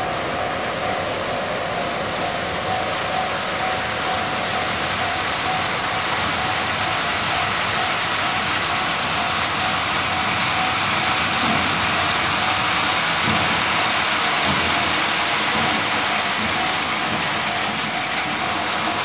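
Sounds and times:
faint level-crossing alarm ringing: 0:00.0 - 0:09.0
freight train wheels rumbling on rail: 0:00.0 - 0:19.0.

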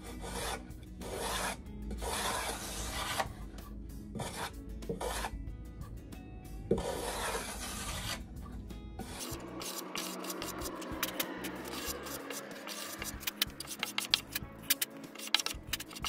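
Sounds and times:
wood being sanded by hand: 0:00.2 - 0:03.3, 0:06.8 - 0:08.2, 0:09.1 - 0:16.0.

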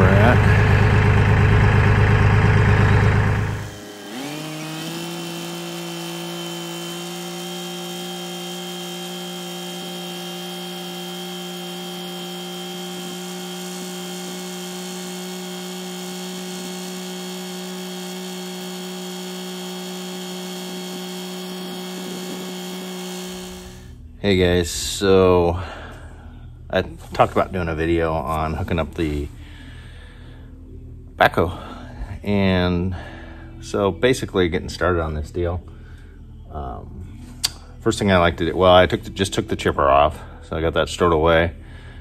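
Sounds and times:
loud rumble: 0:00.0 - 0:03.8
tractor diesel engine droning: 0:00.0 - 0:26.2.

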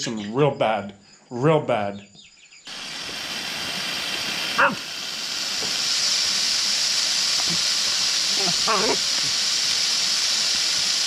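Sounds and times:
water spraying from hose: 0:02.7 - 0:11.0.

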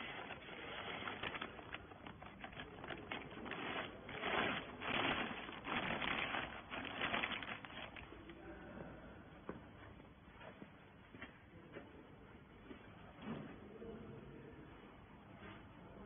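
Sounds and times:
plastic bag crinkling and rustling: 0:00.0 - 0:08.2.

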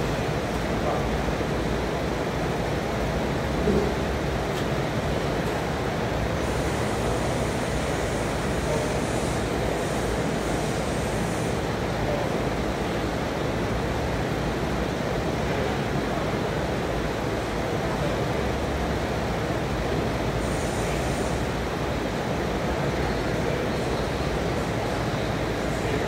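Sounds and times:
steady rushing hiss: 0:06.2 - 0:12.0.

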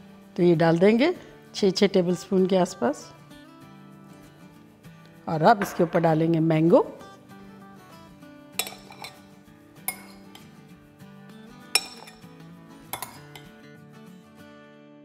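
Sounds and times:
soft background music: 0:00.0 - 0:15.0
spoon clinking on dish: 0:08.6 - 0:10.6, 0:11.8 - 0:12.3, 0:12.9 - 0:13.6.

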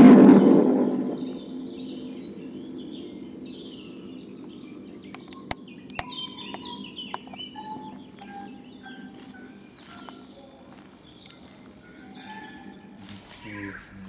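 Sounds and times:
birds chirping: 0:00.0 - 0:14.0
sharp clicks: 0:05.1 - 0:08.4.

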